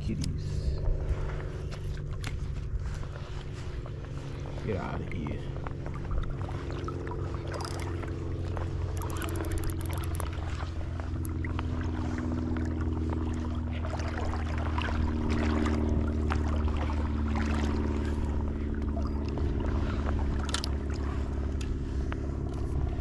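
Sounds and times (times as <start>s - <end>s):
low motor drone: 0.0s - 23.0s
fine ticks: 7.5s - 7.9s, 9.0s - 10.3s.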